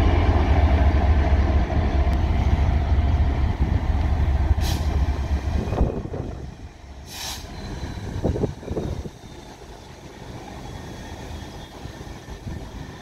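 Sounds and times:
diesel locomotive rumbling: 0.0s - 13.0s
brief hiss: 4.6s - 5.1s, 7.0s - 7.6s.

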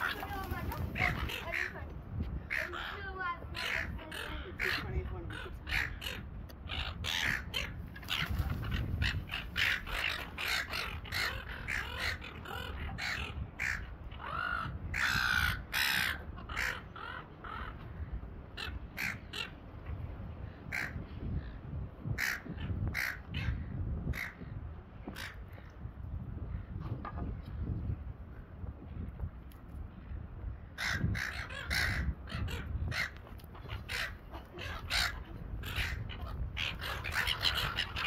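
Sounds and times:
gulls calling: 0.0s - 19.9s, 30.7s - 38.0s.

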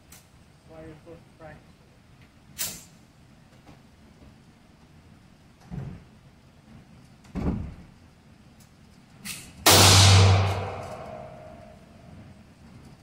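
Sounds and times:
gunshots on indoor range: 9.6s - 12.0s
range echo: 9.7s - 12.0s.

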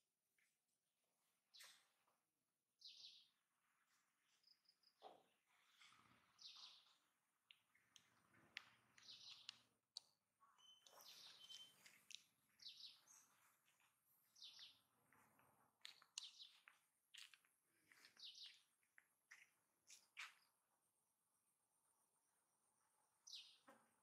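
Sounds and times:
faint bird chirping: 2.8s - 15.2s, 23.2s - 23.8s.

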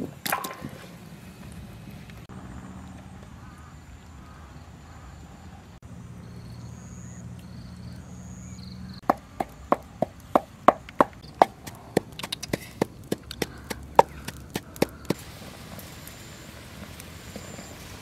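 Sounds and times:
pestle pounding in a mortar: 9.0s - 15.0s.

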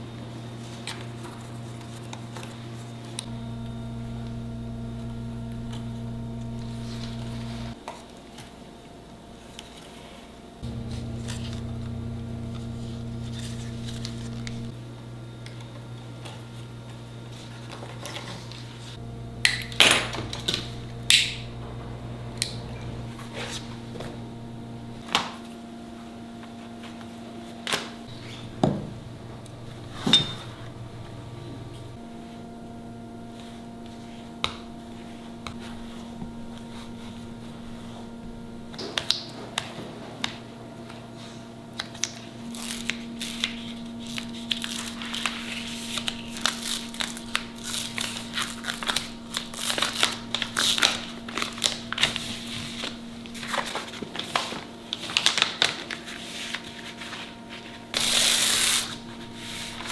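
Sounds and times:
low electrical hum: 0.0s - 59.9s.

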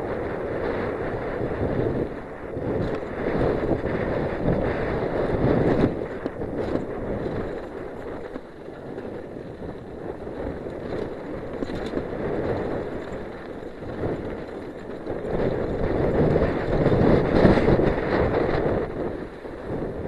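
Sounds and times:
bike tyres rolling over dirt: 0.0s - 20.0s
wind buffeting microphone: 0.0s - 20.0s
bike clattering over bumps: 2.6s - 19.8s.

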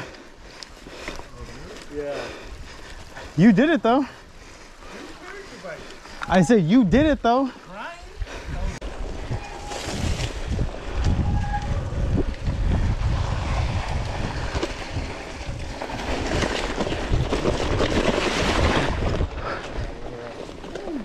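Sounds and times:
wind buffeting microphone: 8.1s - 20.2s
bike tyres rolling on gravel: 10.2s - 21.0s.

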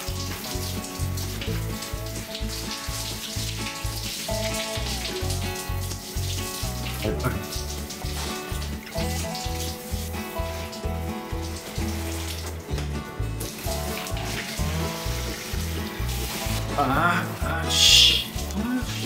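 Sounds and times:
background music with bass beat: 0.0s - 19.0s
shower spray hissing: 0.0s - 19.0s.

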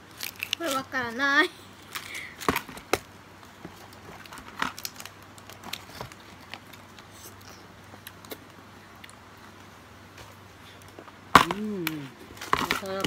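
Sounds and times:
plastic packaging crinkling: 0.0s - 1.2s, 3.7s - 7.0s
faint low hum: 0.0s - 13.0s.

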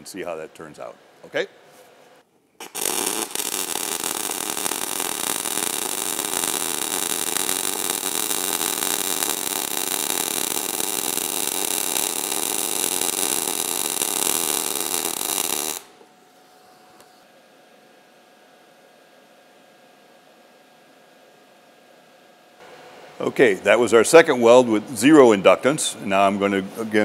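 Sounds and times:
welding arc crackling: 2.6s - 16.0s.

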